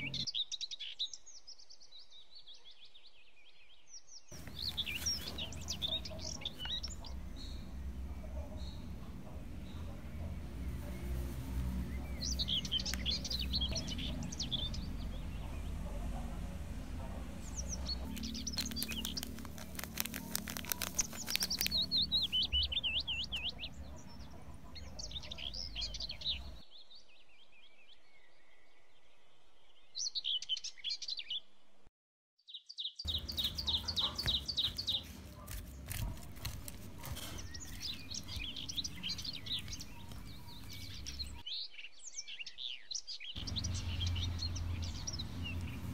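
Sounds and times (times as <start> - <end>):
small birds chirping: 0.0 - 29.1, 32.5 - 45.9
low steady hum: 4.4 - 26.6, 43.4 - 45.9.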